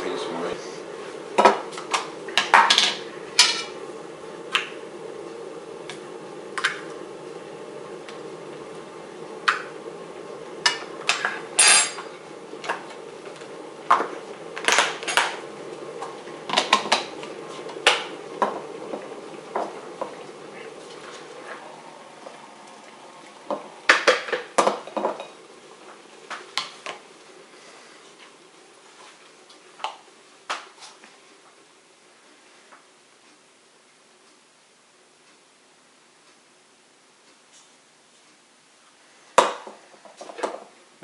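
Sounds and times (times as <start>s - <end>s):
steady low hum: 0.0s - 30.5s.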